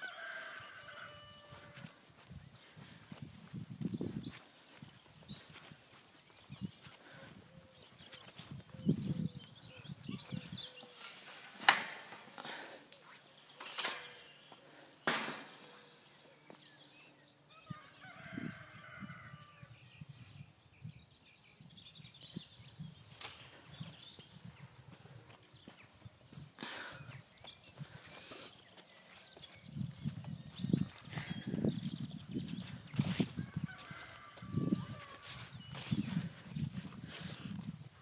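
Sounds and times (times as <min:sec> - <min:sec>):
footsteps through grass: 0:00.0 - 0:09.5, 0:10.2 - 0:12.4, 0:31.9 - 0:37.8.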